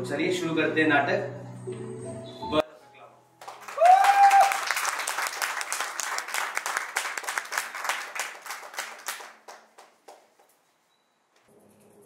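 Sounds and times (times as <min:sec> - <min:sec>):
audience clapping: 0:03.4 - 0:10.6.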